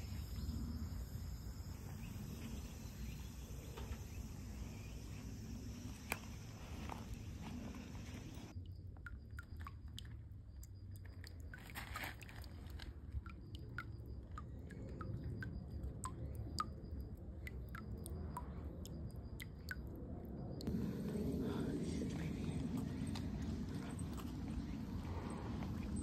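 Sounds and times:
low rumble: 20.0 - 26.0.

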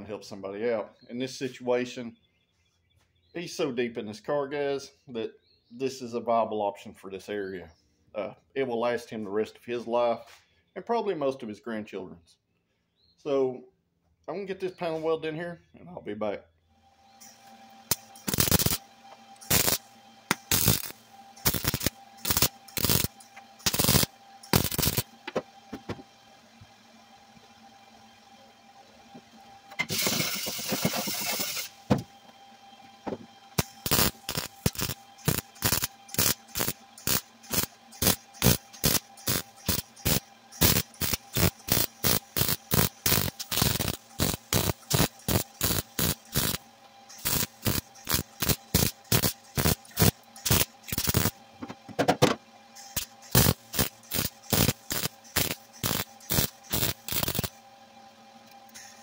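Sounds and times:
mig welder welding bursts: 17.2 - 26.0, 29.7 - 31.9, 33.5 - 51.4, 52.8 - 57.6.

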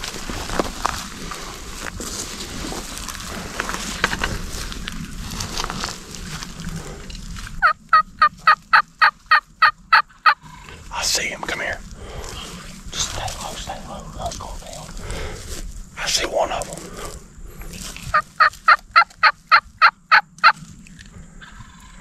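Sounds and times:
turkey yelps: 7.6 - 10.4, 18.1 - 20.6.

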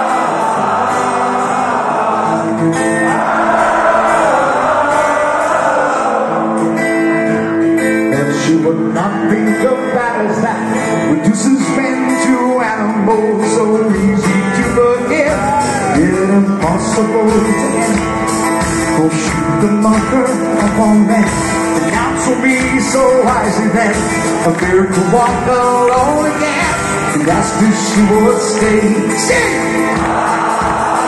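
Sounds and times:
acoustic guitar: 0.0 - 31.0
crowd singing along and cheering: 0.0 - 31.0
man singing lead: 7.8 - 31.0
drums: 11.4 - 31.0.

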